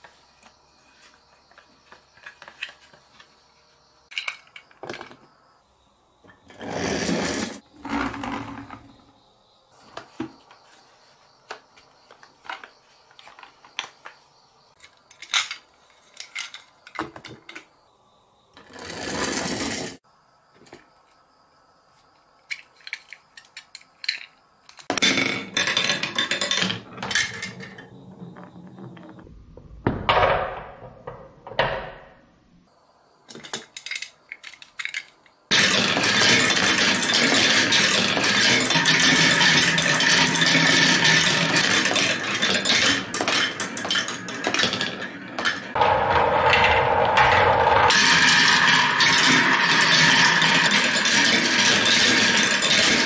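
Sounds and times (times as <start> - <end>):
marbles rattling down wooden tracks: 18.6 - 20.0, 24.9 - 29.2, 33.9 - 53.0
small clicks and rattles: 22.5 - 27.9, 33.3 - 48.0.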